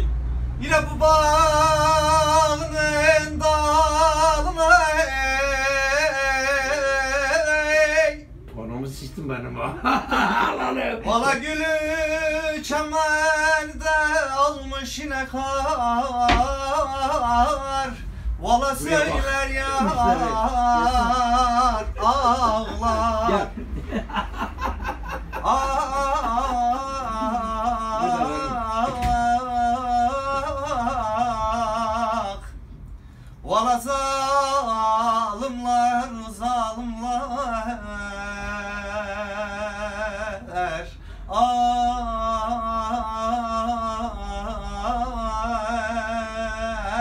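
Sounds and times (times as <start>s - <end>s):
man singing unaccompanied: 0.6s - 8.4s, 11.0s - 24.4s, 25.0s - 32.6s, 33.4s - 47.0s.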